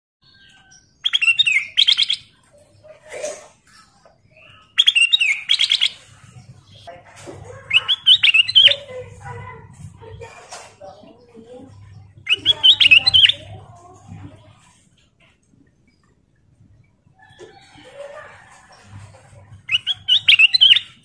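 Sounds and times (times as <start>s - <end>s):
soft low bird calls: 0.2s - 21.0s
bird whistled song bursts: 0.4s - 2.3s, 4.5s - 6.0s, 7.8s - 8.8s, 19.7s - 21.0s.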